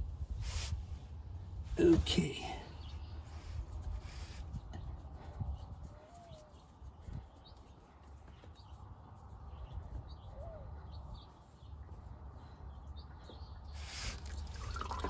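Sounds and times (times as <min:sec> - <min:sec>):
faint bird chirps: 0:04.6 - 0:14.9
oil hissing and splashing: 0:13.8 - 0:15.0.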